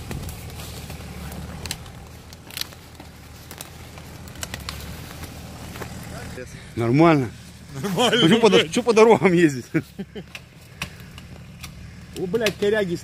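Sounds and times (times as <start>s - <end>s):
sharp cracks and clicks: 0.0s - 6.0s, 10.2s - 13.0s
car engine running: 0.0s - 13.0s.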